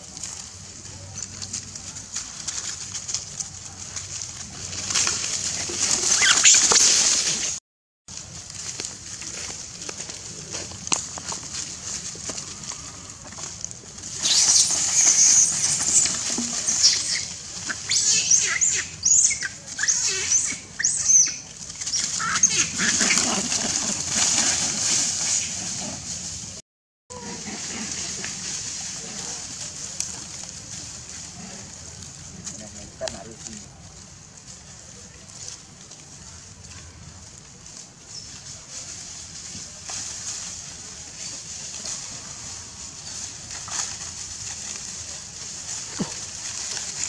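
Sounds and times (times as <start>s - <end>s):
dry leaves rustling: 0.0s - 47.0s
monkeys screaming: 5.8s - 7.4s, 14.2s - 24.6s.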